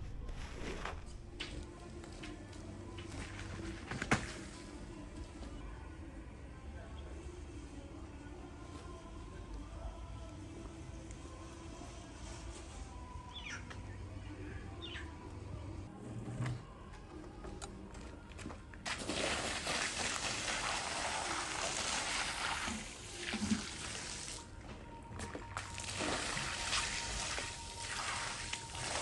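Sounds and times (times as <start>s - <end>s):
water from hose splashing: 18.8s - 24.5s, 25.2s - 29.0s.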